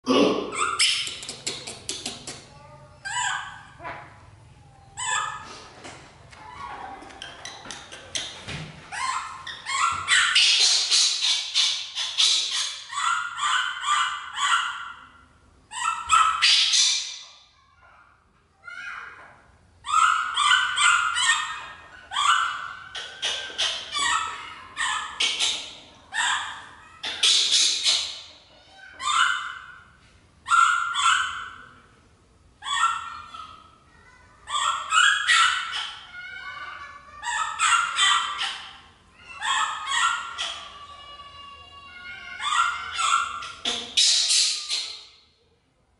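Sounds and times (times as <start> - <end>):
baby monkey crying: 4.9 - 5.4, 8.0 - 15.0, 18.7 - 29.8, 34.5 - 45.0.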